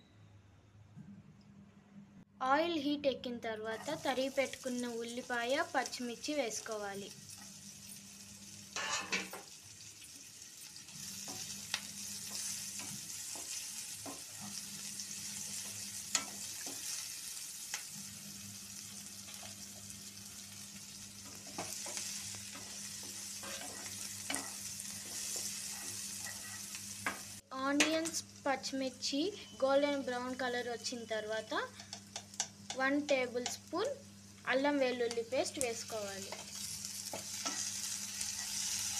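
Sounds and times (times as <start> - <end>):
onions sizzling in hot oil: 3.7 - 38.9
spatula scraping a pan: 22.6 - 27.2.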